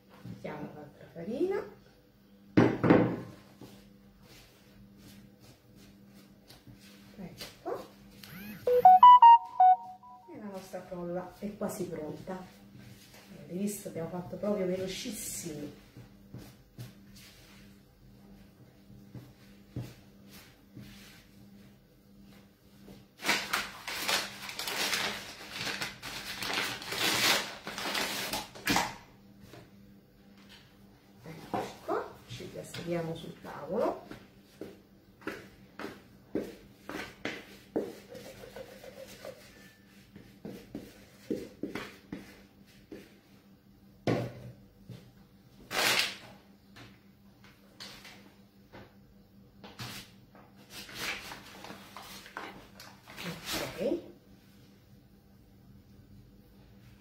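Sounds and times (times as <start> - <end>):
flour bag rustling and crackling: 23.2 - 28.4.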